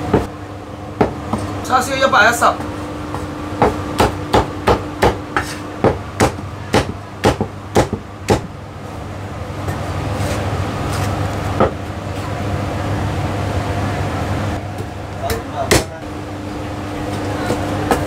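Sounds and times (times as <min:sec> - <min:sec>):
cleaver chopping on wooden block: 0:03.1 - 0:08.5.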